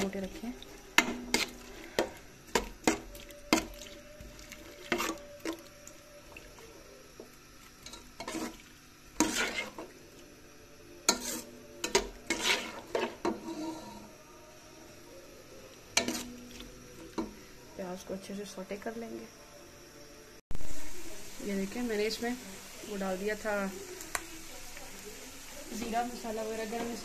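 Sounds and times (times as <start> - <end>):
spoon scraping and knocking a pan: 0.3 - 5.6, 7.8 - 10.0, 11.1 - 14.1, 16.0 - 17.4.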